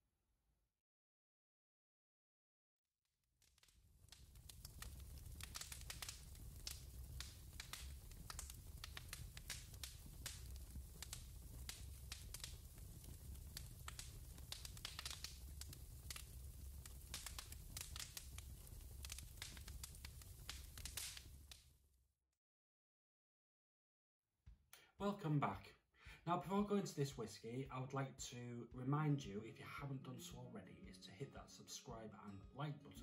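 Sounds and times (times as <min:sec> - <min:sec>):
fire crackling and popping: 0:03.4 - 0:21.9
low rumble of flames: 0:03.6 - 0:21.7.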